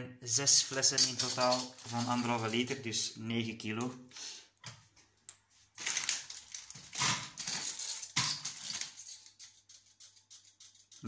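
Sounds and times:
plastic wrapping crinkling: 5.7 - 7.0.

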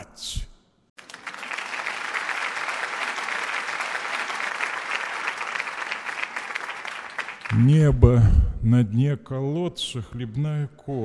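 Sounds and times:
audience applauding: 1.0 - 8.1.

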